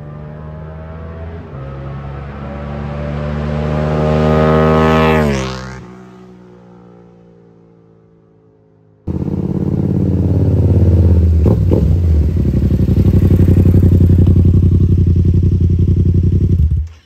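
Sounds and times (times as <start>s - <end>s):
motorcycle engine throbbing: 9.1s - 17.0s.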